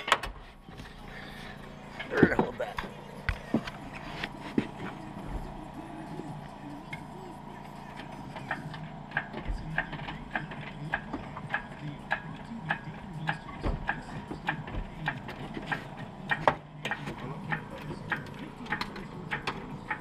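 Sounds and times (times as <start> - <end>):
steady ticking: 4.8 - 20.0.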